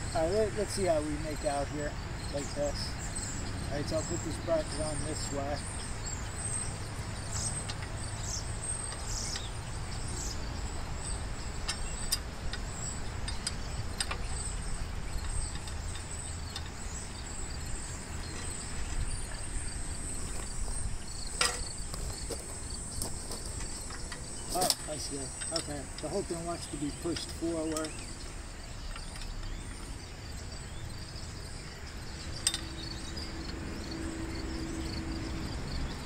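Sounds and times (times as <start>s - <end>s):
insects chirping: 0.0s - 36.0s
sharp metal clicks: 11.4s - 19.0s, 19.6s - 29.9s.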